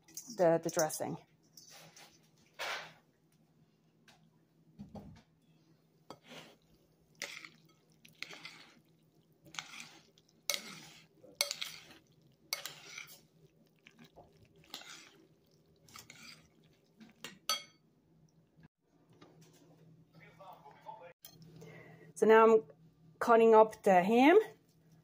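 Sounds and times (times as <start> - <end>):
spoon clinking against glass: 17.5 - 17.8.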